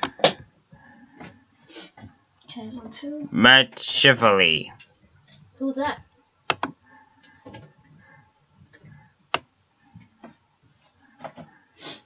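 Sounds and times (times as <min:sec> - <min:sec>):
sharp clicks: 0:06.5 - 0:06.8.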